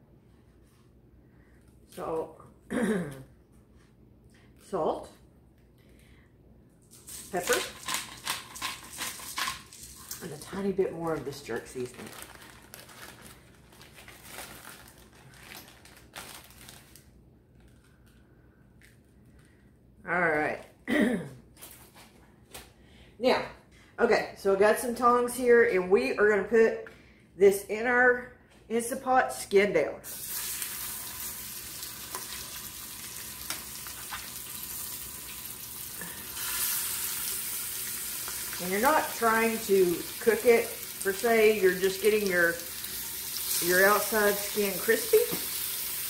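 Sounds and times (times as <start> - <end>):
plastic bag crinkling: 6.9 - 18.2
chicken sizzling in oil: 30.1 - 46.0.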